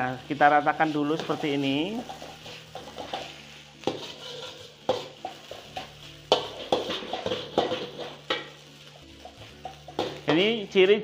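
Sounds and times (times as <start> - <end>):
ladle scraping a wok: 0.2 - 10.4.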